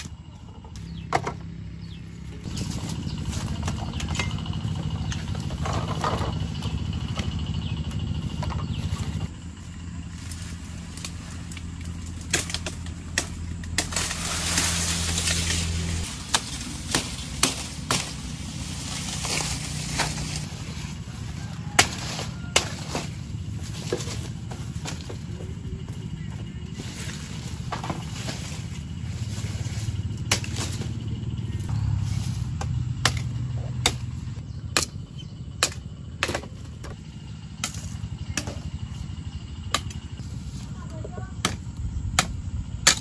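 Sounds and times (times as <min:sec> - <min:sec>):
low engine-like hum: 0:00.0 - 0:43.0
cane leaves rustling: 0:09.3 - 0:32.6
sugarcane chopping knocks: 0:16.3 - 0:18.3, 0:30.3 - 0:30.9.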